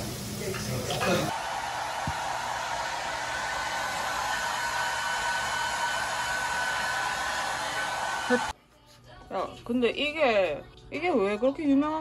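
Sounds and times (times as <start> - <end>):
fan blowing air: 0.0 - 8.5.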